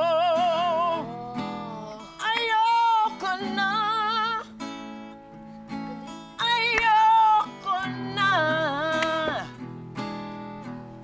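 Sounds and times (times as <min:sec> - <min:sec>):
woman singing with vibrato: 0:00.0 - 0:04.6, 0:05.7 - 0:09.6
acoustic guitar blues: 0:00.0 - 0:11.0.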